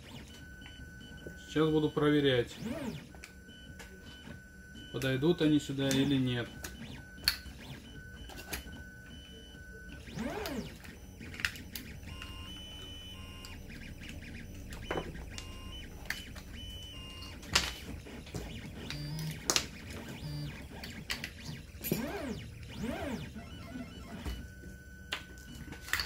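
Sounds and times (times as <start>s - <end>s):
quiet synth background music: 0.0s - 26.0s
plastic parts clicking and knocking: 10.2s - 22.8s, 24.1s - 26.0s.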